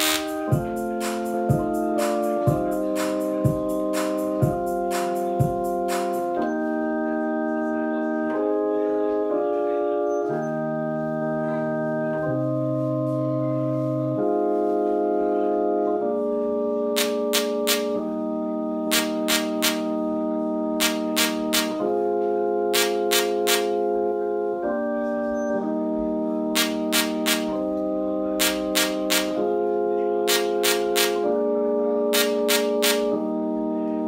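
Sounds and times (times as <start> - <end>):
electronic organ-like chords: 0.0 - 34.0
kick drum beat: 0.5 - 0.8, 1.5 - 1.8, 2.5 - 2.8, 3.4 - 3.8, 4.4 - 5.7.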